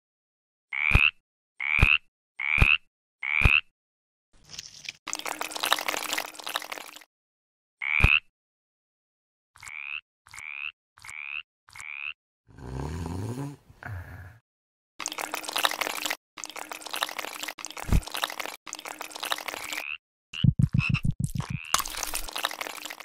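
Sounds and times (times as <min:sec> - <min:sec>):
frog croaks: 0:09.6 - 0:12.2.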